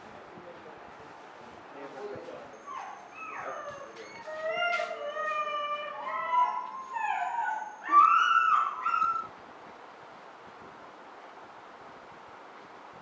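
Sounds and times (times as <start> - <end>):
dogs howling and whining: 2.5 - 9.3.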